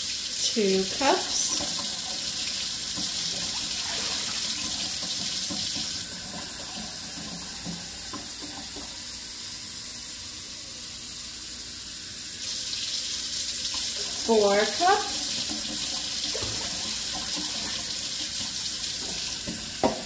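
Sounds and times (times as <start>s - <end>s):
faucet running into metal sink: 0.0s - 9.2s, 12.4s - 20.0s.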